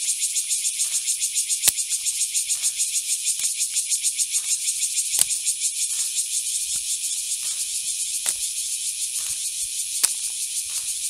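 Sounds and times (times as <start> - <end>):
insect chorus buzzing: 0.0 - 11.0
sharp clicks: 5.1 - 5.4, 10.0 - 10.4.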